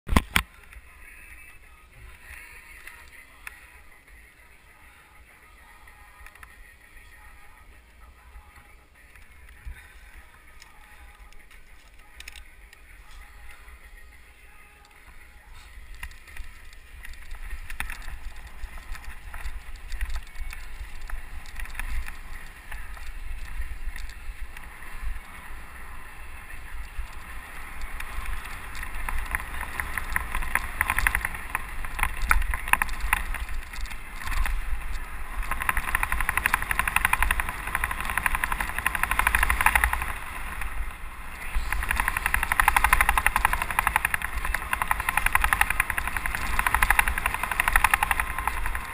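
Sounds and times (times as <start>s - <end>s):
wind rumbling on microphone: 5.8s - 48.9s
tyres rolling over dirt and leaves: 9.1s - 48.9s
bike rattling over bumps: 15.0s - 48.9s.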